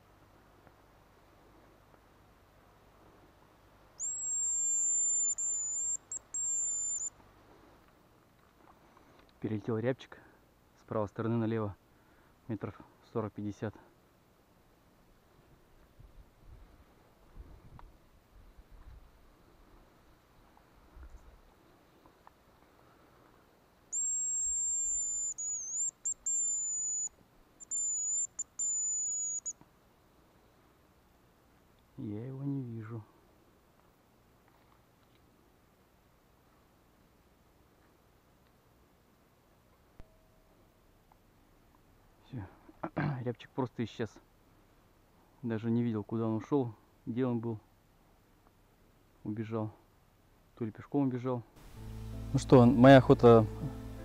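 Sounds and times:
hazel grouse whistle: 4.0 - 7.1, 23.9 - 29.6.

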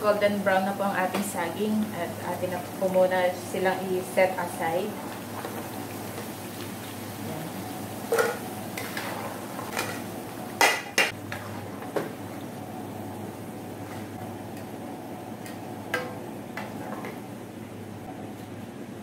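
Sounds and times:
ladle scraping a frying pan: 8.1 - 10.0.

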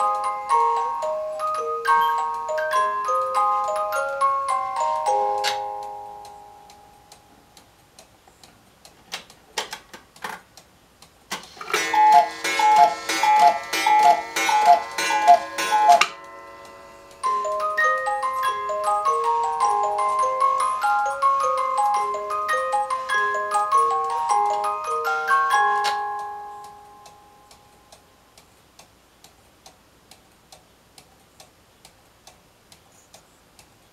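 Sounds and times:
music box tinkling tune: 0.0 - 7.4, 11.8 - 27.9
clock ticking and clicking: 0.0 - 33.9
clacking of cuckoo bird and door: 11.4 - 16.2
cuckoo calls: 11.6 - 27.6.

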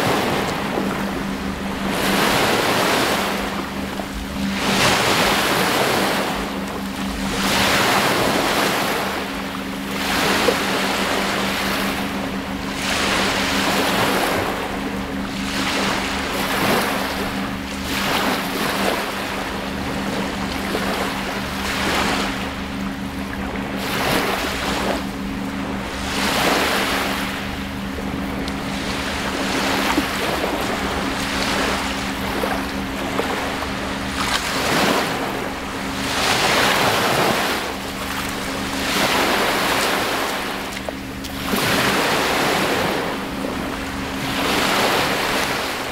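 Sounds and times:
low hum: 0.0 - 45.9
waves lapping on shore: 0.0 - 45.9.

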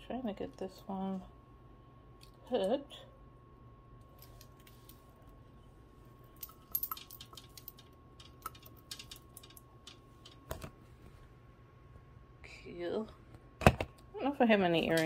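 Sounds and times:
jewelry clicks and clinks: 6.4 - 10.4.

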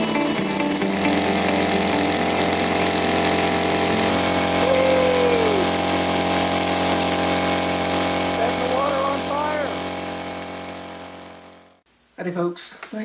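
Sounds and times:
guitar music: 0.0 - 2.2
outboard motor running: 0.0 - 11.8.

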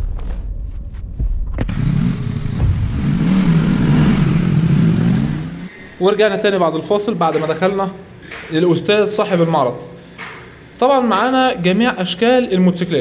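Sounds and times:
motorcycle engine running: 1.2 - 5.7.

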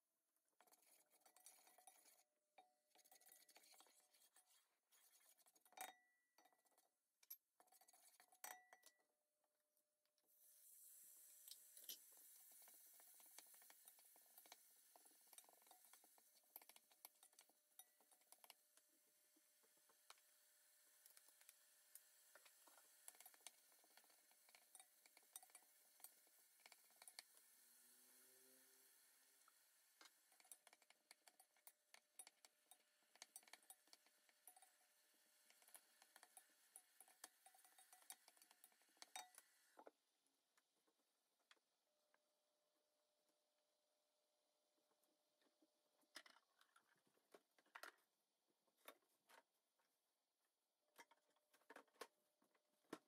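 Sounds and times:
spatula scraping in a pot: 0.6 - 6.9, 7.6 - 8.5, 20.9 - 29.0, 30.0 - 39.4
faint clicks and ticks: 11.4 - 18.9, 20.9 - 27.6, 29.4 - 39.9.

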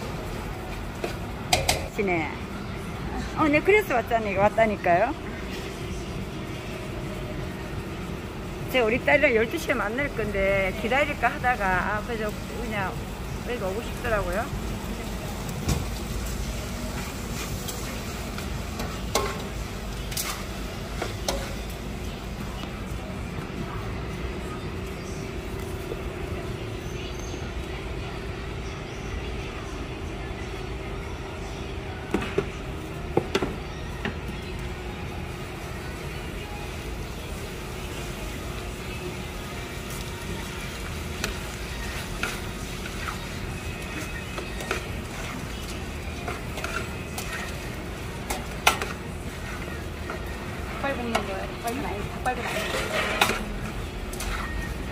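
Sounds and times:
kitchen hiss and bustle: 0.0 - 54.9
kitchen clatter: 1.0 - 2.1, 16.9 - 21.8, 41.1 - 54.6
utensils clinking against pots: 1.0 - 2.1, 16.9 - 21.8, 41.0 - 54.9.

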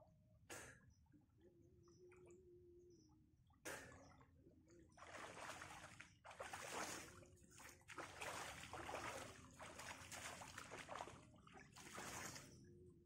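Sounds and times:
water splashing and trickling: 3.6 - 12.7.

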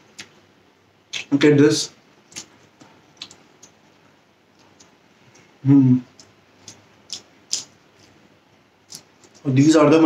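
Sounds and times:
sharp eating clicks: 1.1 - 1.3, 2.3 - 8.2, 8.9 - 9.5.

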